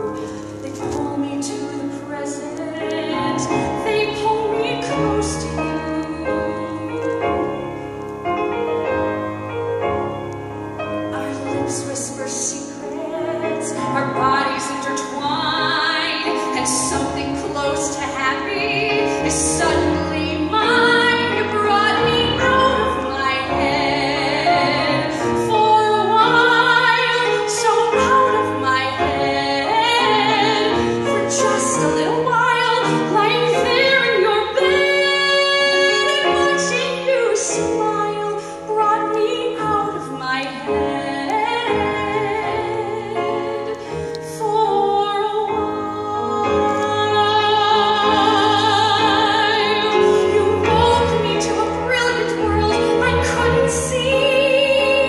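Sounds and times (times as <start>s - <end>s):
woman singing: 0.0s - 7.6s, 11.0s - 55.0s
grand piano accompaniment: 0.0s - 55.0s.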